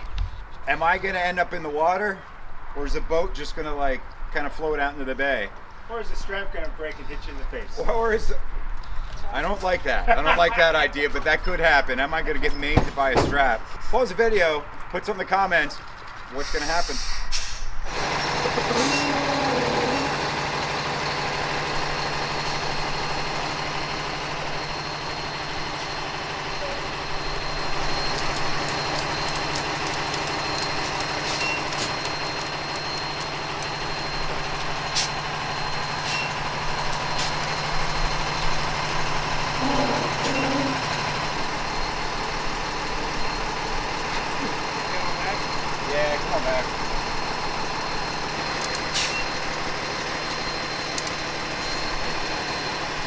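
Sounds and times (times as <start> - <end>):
diesel engine running at low revs: 17.7 - 53.0
sharp clicks: 28.1 - 33.8, 50.3 - 51.2.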